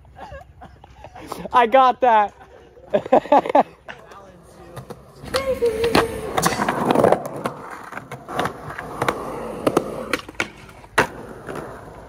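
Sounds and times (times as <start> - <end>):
skateboard wheels rolling on concrete: 0.0 - 12.0
skateboard clacks: 3.4 - 12.0.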